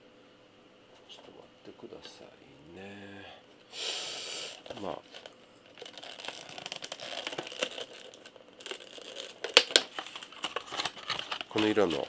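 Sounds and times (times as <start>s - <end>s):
plastic packaging crinkling: 4.5s - 12.0s.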